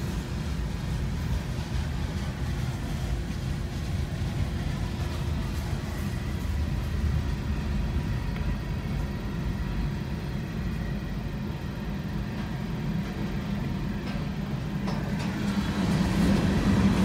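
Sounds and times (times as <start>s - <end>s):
freight train rumbling past: 0.0s - 17.0s
faint train wheel clicks: 12.1s - 16.9s.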